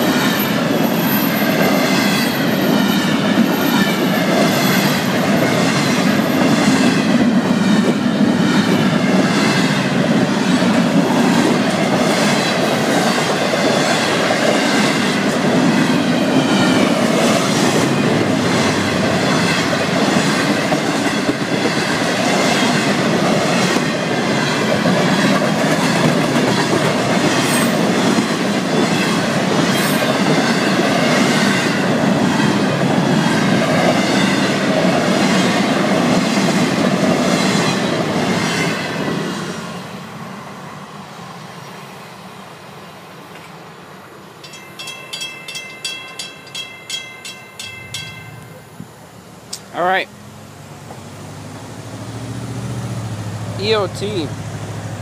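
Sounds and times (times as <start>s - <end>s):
train wheels rumbling on rail: 0.0s - 48.9s, 49.5s - 55.0s
wheels clickety-clack over joints: 16.7s - 31.2s.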